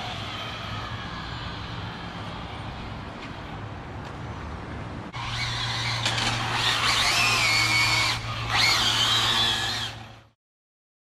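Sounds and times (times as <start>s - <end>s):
electric motors whining: 5.2s - 10.3s.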